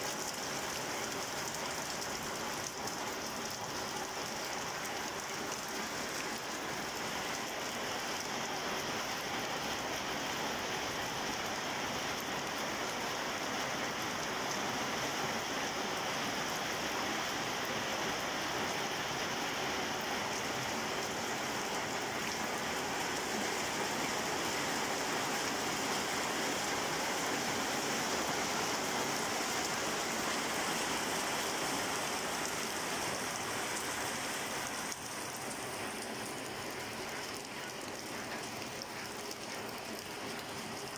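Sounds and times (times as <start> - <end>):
rain on brick paving: 0.0 - 40.9.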